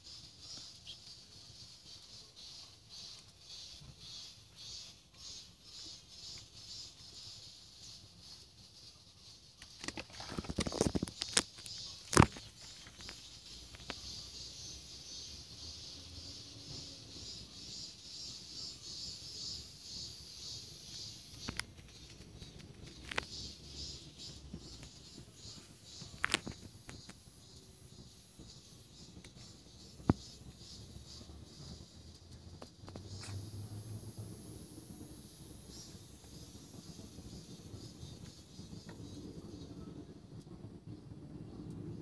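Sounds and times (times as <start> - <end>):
faint high pulsing hiss: 0.0 - 10.4, 11.4 - 42.0
rustling and clattering: 9.6 - 14.0
lone tick: 13.0 - 14.1.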